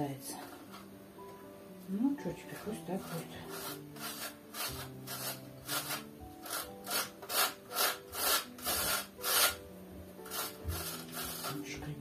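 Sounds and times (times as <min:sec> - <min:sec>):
cheese grated on metal grater: 0:02.5 - 0:09.6, 0:10.2 - 0:12.0.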